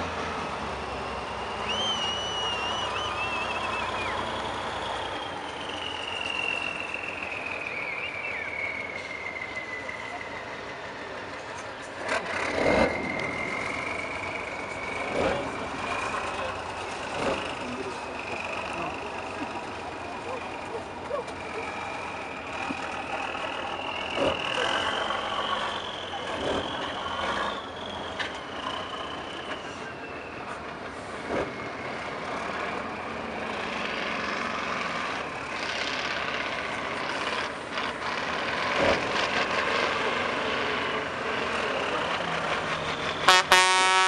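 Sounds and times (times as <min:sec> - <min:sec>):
truck engine revving under load: 0:00.0 - 0:44.0
loud horn blast: 0:43.2 - 0:44.0.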